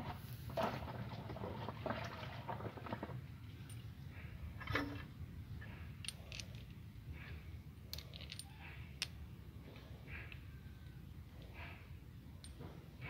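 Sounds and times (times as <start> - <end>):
metallic clicks of tools and bolts: 4.6 - 7.3, 7.9 - 9.2, 12.3 - 12.8.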